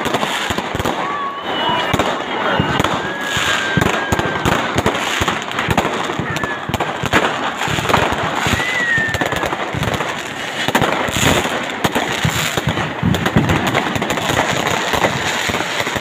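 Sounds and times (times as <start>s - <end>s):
firework whistle: 0.0s - 11.5s
fireworks bangs and crackles: 0.0s - 16.0s.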